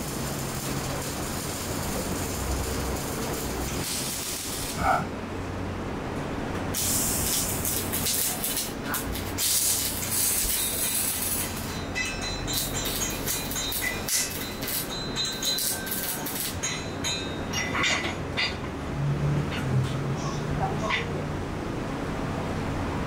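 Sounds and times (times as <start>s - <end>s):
welding arc crackling hiss: 0.0s - 5.0s, 6.7s - 16.8s
steady low hum: 0.0s - 23.0s.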